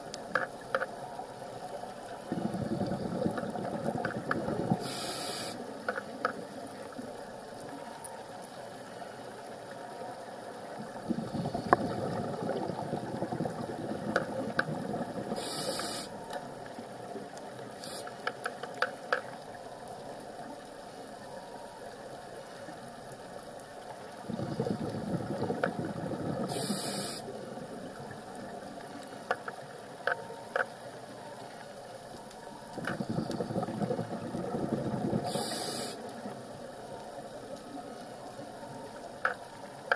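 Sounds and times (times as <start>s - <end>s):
sharp clicks of reef: 0.0s - 1.0s, 2.4s - 6.5s, 11.4s - 19.5s, 24.4s - 27.3s, 29.0s - 30.8s, 32.2s - 36.5s, 38.8s - 39.9s
bubbling exhalation underwater: 2.3s - 4.8s, 11.0s - 15.4s, 24.3s - 27.0s, 32.8s - 35.5s
regulator inhalation hiss: 4.7s - 5.6s, 15.3s - 16.2s, 26.5s - 27.3s, 35.2s - 36.1s.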